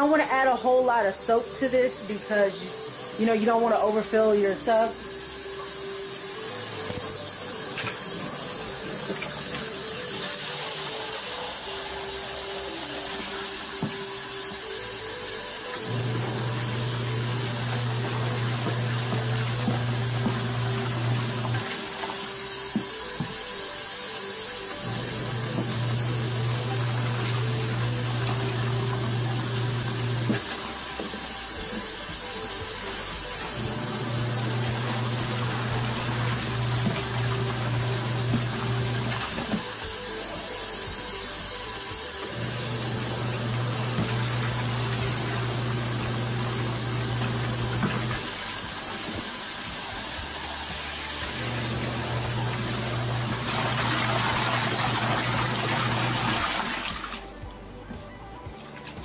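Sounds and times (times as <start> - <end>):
washing machine motor humming: 0.0 - 57.3
water sloshing in tub: 51.8 - 57.2.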